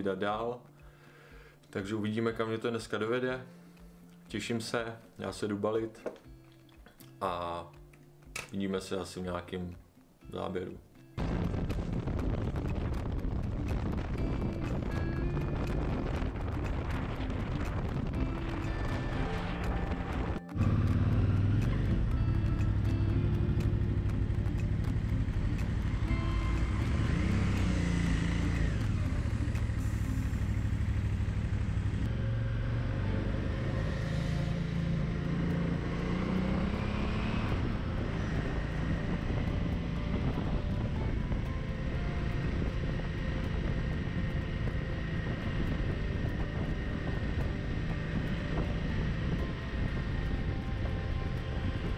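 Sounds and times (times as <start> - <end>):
motorcycle engine accelerating: 11.2 - 51.9.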